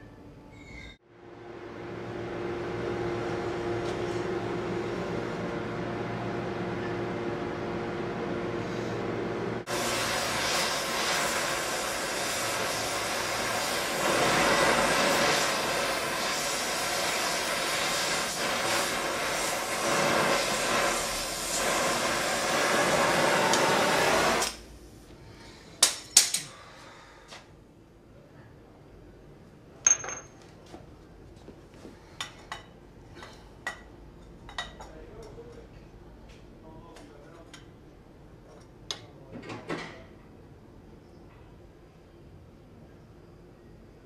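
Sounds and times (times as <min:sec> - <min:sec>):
machine hum: 0:01.1 - 0:17.7
loud hissing rush: 0:09.6 - 0:24.5.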